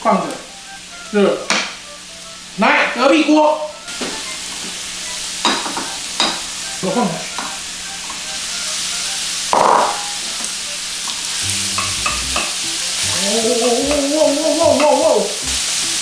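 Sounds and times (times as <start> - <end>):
meat sizzling in a frying pan: 0.1 - 16.0
spatula knocking and scraping pan: 5.4 - 6.5, 11.7 - 12.6
person singing: 13.0 - 15.7.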